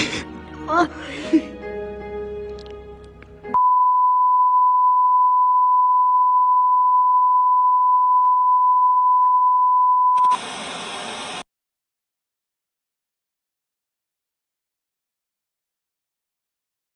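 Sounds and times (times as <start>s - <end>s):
loud static hiss: 10.3s - 11.4s.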